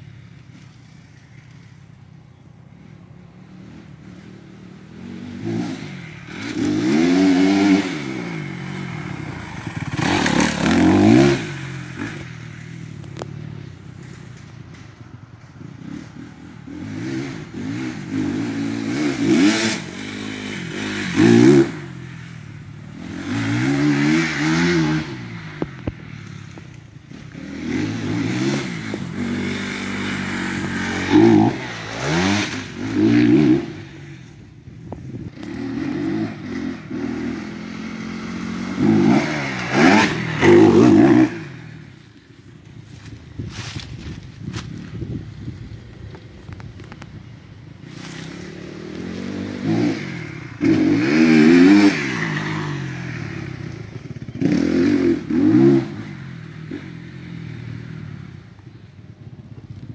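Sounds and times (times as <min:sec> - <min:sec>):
dirt bike engine revving: 0:03.5 - 0:14.4, 0:15.6 - 0:42.2, 0:47.6 - 0:58.2.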